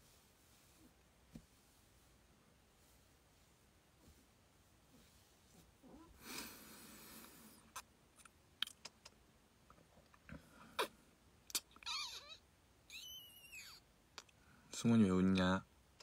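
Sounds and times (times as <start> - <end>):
soft handling rustle: 0.0 - 6.2.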